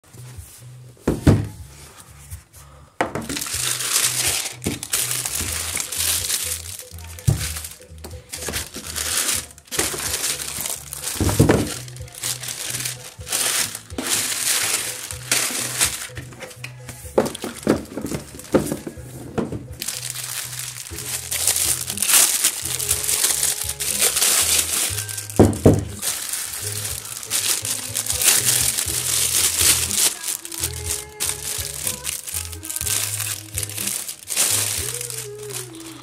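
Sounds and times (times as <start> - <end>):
background music with bass line: 0.0 - 36.0
paper and plastic crinkling: 3.1 - 36.0.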